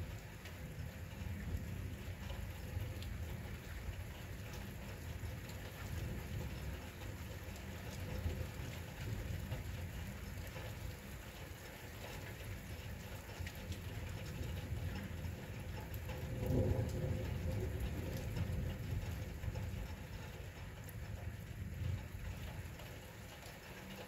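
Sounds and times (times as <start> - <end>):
rain falling: 0.0 - 24.0
raindrops ticking on surfaces: 0.0 - 24.0.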